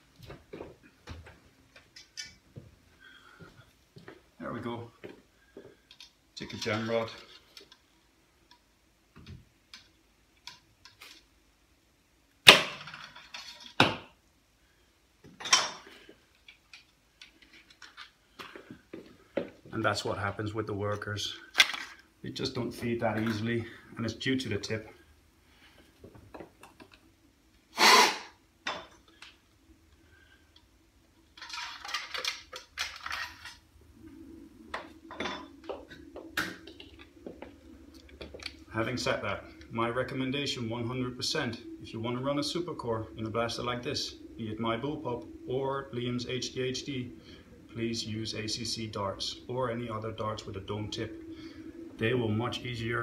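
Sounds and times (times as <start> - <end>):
plastic and metal parts clattering: 21.6 - 22.0, 31.4 - 33.6.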